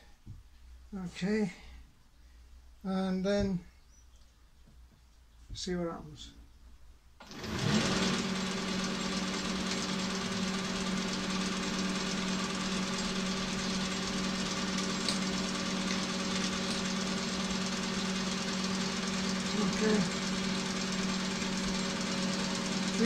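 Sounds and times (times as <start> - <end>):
metal lathe humming and whining: 7.2 - 23.0.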